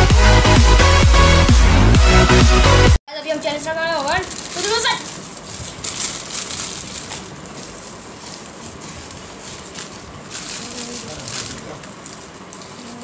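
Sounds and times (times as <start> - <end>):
plastic wrappers crinkling: 3.6 - 13.0.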